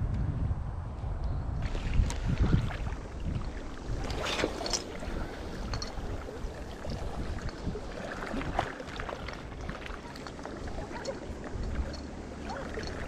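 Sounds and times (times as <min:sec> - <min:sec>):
wind buffeting microphone: 0:00.0 - 0:13.0
waves sloshing against rocks: 0:01.6 - 0:13.0.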